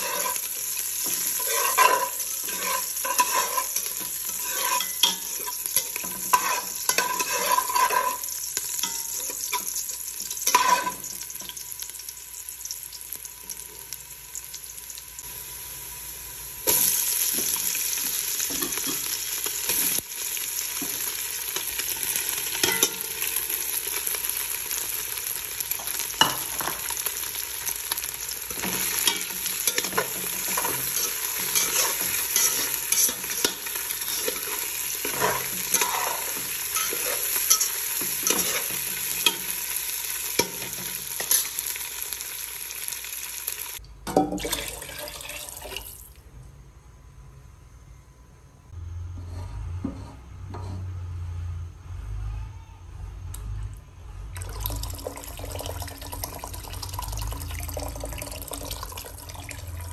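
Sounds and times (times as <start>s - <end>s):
spoon scraping pot: 0.0s - 9.7s, 28.5s - 39.5s
onion sizzling in oil: 0.0s - 43.8s, 54.4s - 59.9s.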